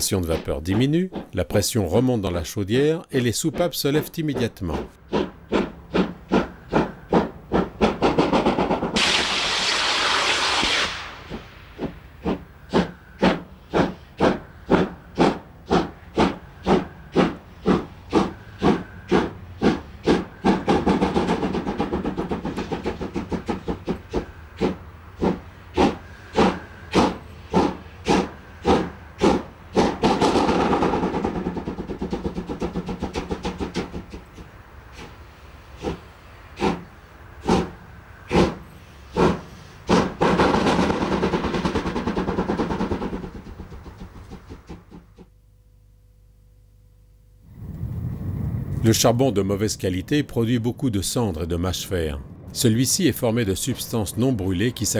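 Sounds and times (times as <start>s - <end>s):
steam locomotive exhaust beats: 0.0s - 45.3s
sharp steam hiss: 9.0s - 20.9s
soft steam hissing: 9.0s - 21.0s, 34.5s - 40.1s.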